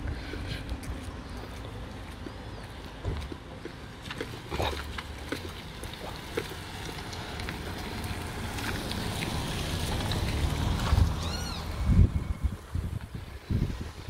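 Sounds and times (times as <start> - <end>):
wind rumbling on microphone: 4.6 - 14.0.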